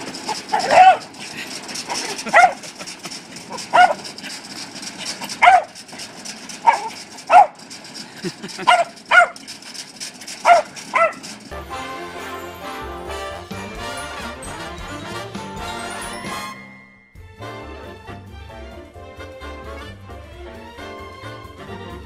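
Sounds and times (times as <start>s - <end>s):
small dog yapping: 0.3s - 1.1s, 1.9s - 2.8s, 3.5s - 4.1s, 5.2s - 5.8s, 6.6s - 7.6s, 8.6s - 9.5s, 10.4s - 11.3s.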